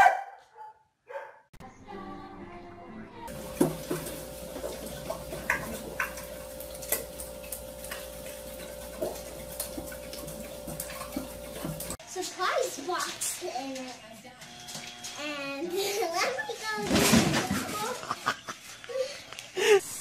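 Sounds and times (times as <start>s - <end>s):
steady hum: 3.3s - 12.0s.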